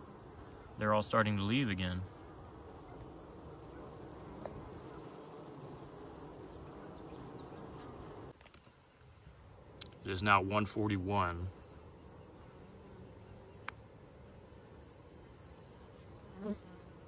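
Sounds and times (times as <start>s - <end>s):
bees buzzing: 0.0s - 17.0s.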